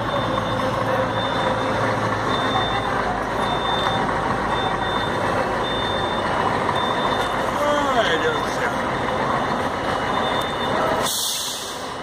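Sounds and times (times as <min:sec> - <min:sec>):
high-pitched warning beep: 0:00.0 - 0:07.5, 0:10.1 - 0:10.9
coach engine pulling away: 0:00.0 - 0:12.0.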